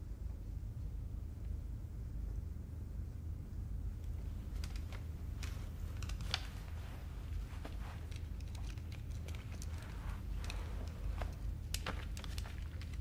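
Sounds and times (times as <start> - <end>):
low hum: 0.0 - 13.0
soft clicks and rustles: 3.9 - 13.0.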